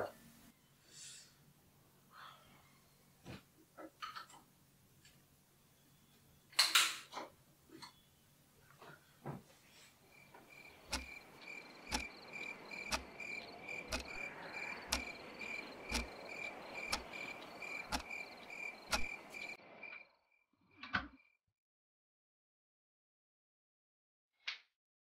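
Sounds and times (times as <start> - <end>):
crickets chirping: 10.0 - 20.4
clock ticking: 10.5 - 19.6.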